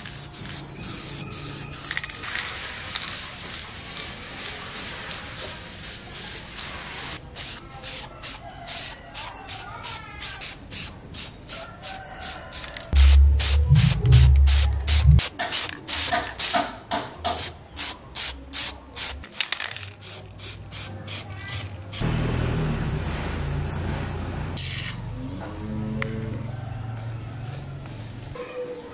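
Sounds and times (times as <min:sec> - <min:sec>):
spray can hissing bursts: 0:00.0 - 0:22.1
deep rumble: 0:13.0 - 0:15.2.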